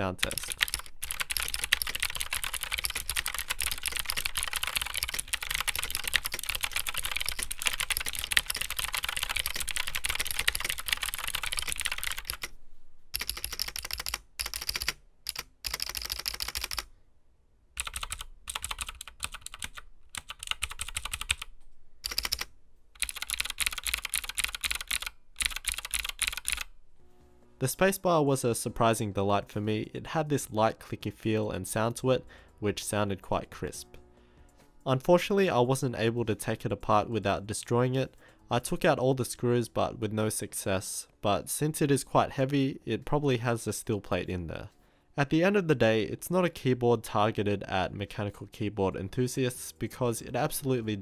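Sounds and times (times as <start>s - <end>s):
clicky mechanical keyboard typing: 0.0s - 12.5s, 13.2s - 16.9s, 17.8s - 26.7s.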